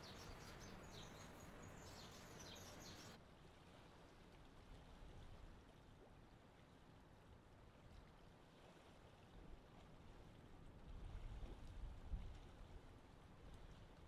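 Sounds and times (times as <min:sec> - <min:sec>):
distant birds chirping: 0:00.0 - 0:03.2
faint background hiss: 0:00.0 - 0:03.2.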